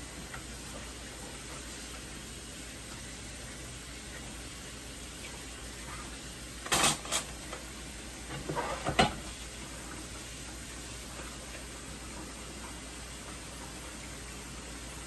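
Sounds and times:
dishes clattering in a sink: 0:06.6 - 0:09.4.

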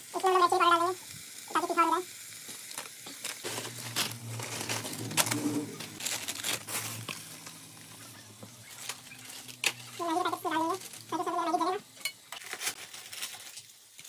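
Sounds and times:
plastic wrappers crinkling: 0:02.3 - 0:14.0.

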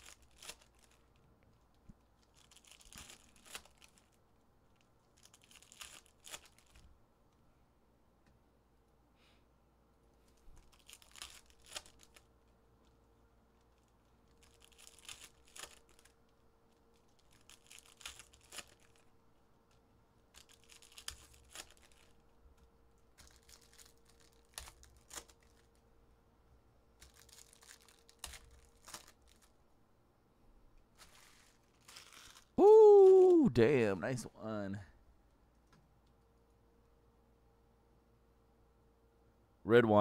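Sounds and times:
foil wrappers ripping and crinkling: 0:00.0 - 0:01.2, 0:02.2 - 0:06.8, 0:10.4 - 0:12.3, 0:13.6 - 0:19.1, 0:19.7 - 0:22.2, 0:23.1 - 0:25.8, 0:27.0 - 0:29.6, 0:30.9 - 0:33.3.

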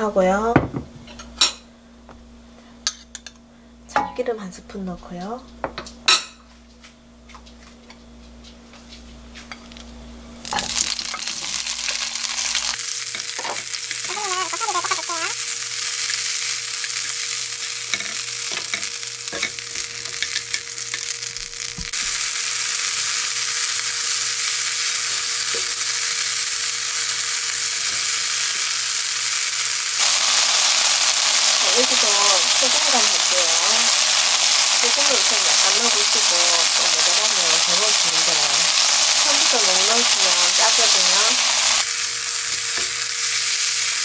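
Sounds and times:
vegetables sizzling in oil: 0:10.4 - 0:44.0.

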